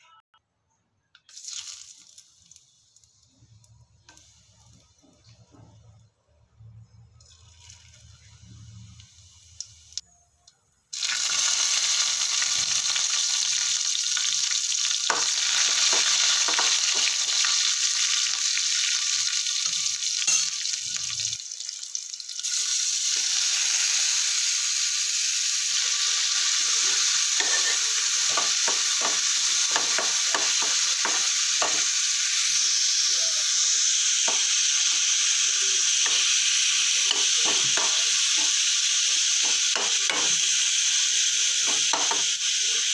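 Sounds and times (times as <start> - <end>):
spices sizzling in hot oil: 1.2 - 6.1, 7.2 - 10.2, 10.8 - 42.9
spatula stirring against pan: 26.9 - 32.0.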